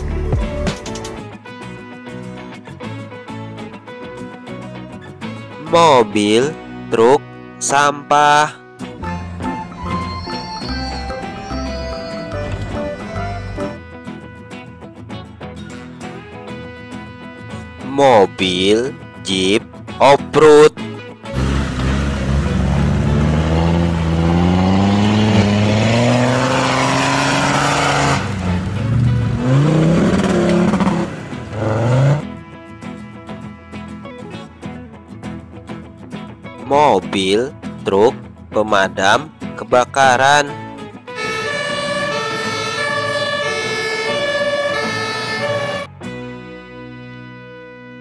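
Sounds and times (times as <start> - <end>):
background music: 0.0 - 48.0
fire engine two-tone siren: 9.0 - 13.8, 41.1 - 46.0
engines revving hard: 21.3 - 32.4, 41.2 - 45.9.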